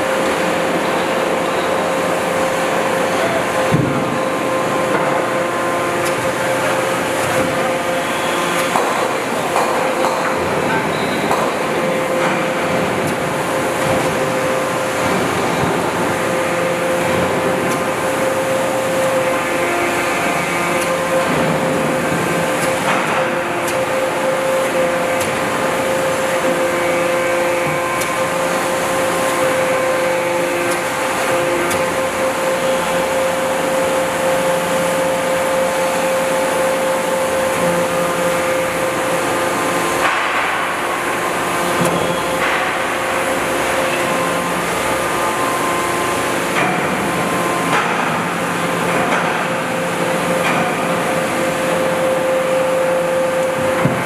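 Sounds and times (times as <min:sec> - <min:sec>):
hydraulic system whine: 0:00.0 - 0:54.0.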